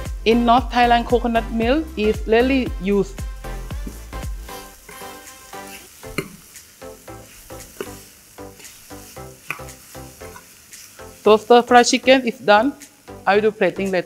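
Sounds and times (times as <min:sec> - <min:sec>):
background music: 0:00.0 - 0:14.0
chicken sizzling in a frying pan: 0:00.0 - 0:14.0
spoon scraping a pan: 0:03.8 - 0:11.2.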